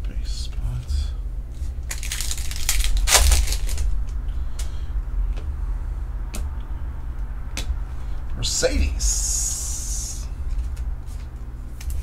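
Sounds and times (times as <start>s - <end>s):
low hum: 0.0s - 12.0s
foil wrapper crinkling: 1.6s - 4.1s.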